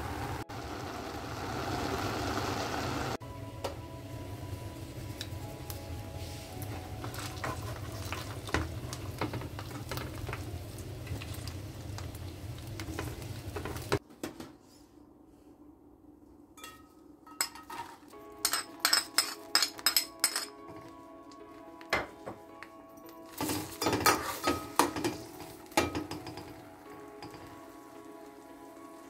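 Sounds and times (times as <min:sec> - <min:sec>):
chicken sizzling in oil: 0:00.0 - 0:14.0, 0:23.6 - 0:29.0
spoon clinking on china and steel: 0:16.6 - 0:20.7
spatula scraping a pan: 0:23.4 - 0:25.6.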